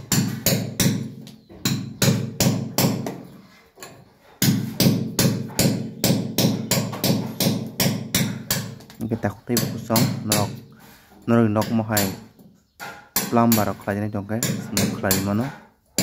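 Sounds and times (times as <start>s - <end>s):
hammer striking chisel into wall: 0.0s - 8.9s, 9.5s - 10.7s, 11.5s - 16.0s.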